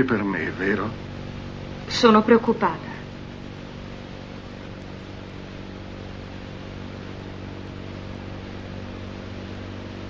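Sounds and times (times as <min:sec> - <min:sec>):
low electrical hum: 0:00.0 - 0:10.0
steady hiss: 0:00.0 - 0:10.0.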